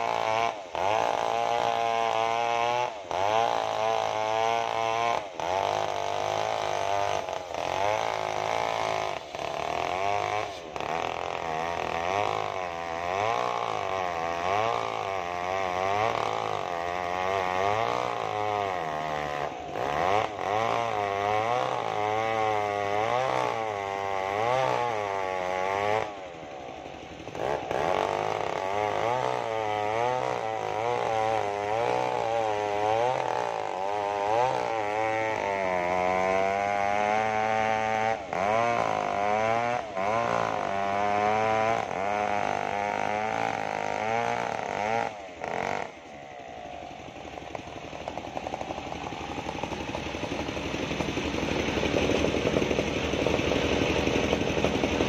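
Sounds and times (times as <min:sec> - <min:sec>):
chainsaw cutting log: 0:00.0 - 0:55.0.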